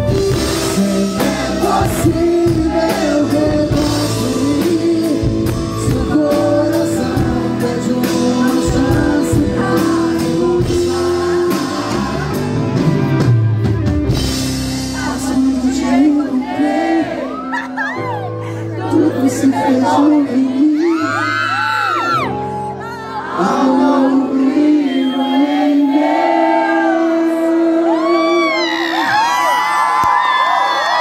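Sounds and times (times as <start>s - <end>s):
man singing: 0.0s - 12.9s, 14.8s - 17.3s, 18.6s - 22.4s, 23.4s - 29.2s
live rock band playing: 0.0s - 20.3s.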